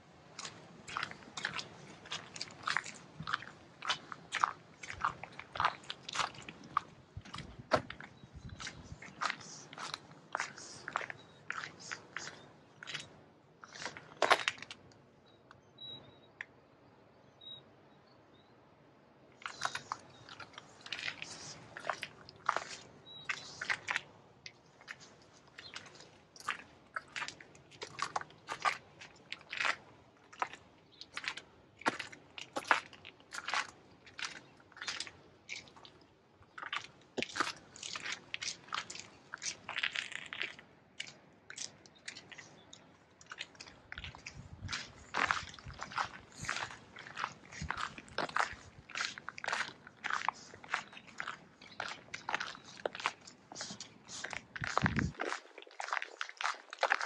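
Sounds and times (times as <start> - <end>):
footsteps crunching on snow: 0.4 - 14.6, 43.4 - 57.0
footsteps crunching in snow: 43.4 - 57.0.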